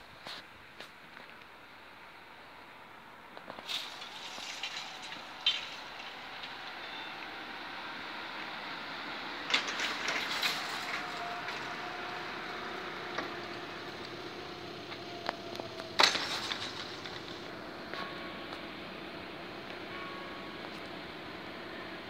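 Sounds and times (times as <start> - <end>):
barrier rattling and knocking: 9.5 - 11.7, 15.8 - 17.5
barrier loud clunk: 15.9 - 17.4.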